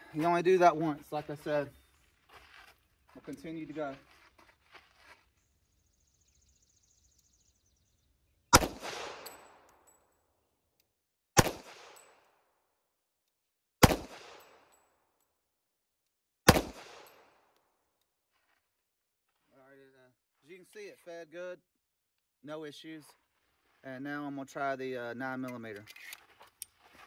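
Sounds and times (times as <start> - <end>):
pistol shots with echo: 8.5 - 9.8, 11.4 - 12.3, 13.8 - 14.8, 16.5 - 17.4.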